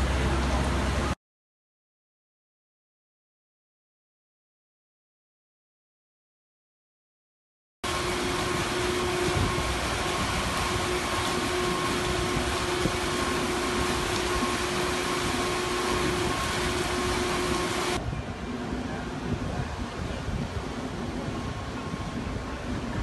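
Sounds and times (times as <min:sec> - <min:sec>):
low droning machinery hum: 0:00.0 - 0:01.2, 0:07.8 - 0:23.0
rushing noise: 0:07.8 - 0:22.5.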